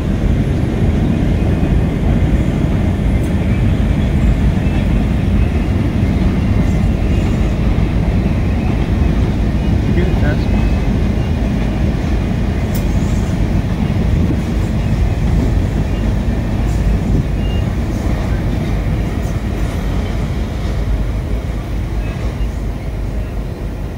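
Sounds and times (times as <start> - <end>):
freight train wheels rumbling: 0.0 - 23.9.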